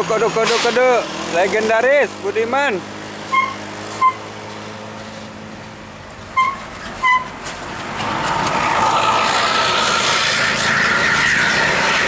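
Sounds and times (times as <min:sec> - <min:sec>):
bus engine running: 0:00.0 - 0:12.0.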